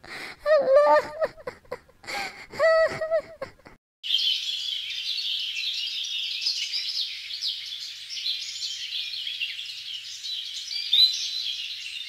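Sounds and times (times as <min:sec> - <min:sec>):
small birds chirping: 0:04.0 - 0:12.0.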